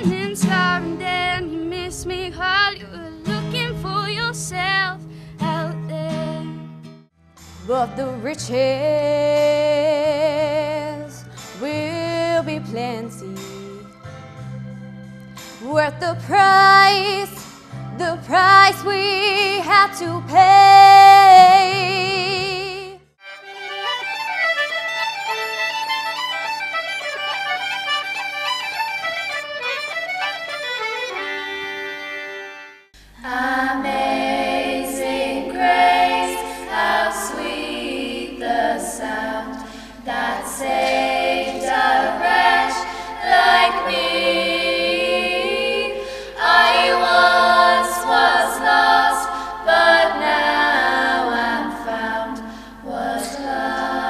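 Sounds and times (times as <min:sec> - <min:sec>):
girls singing in harmony: 0:33.2 - 0:54.0.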